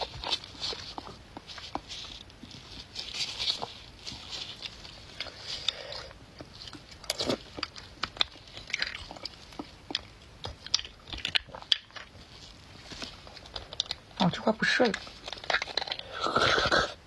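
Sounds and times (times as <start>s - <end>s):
wet mouth eating sounds: 4.5s - 12.1s, 15.2s - 17.0s.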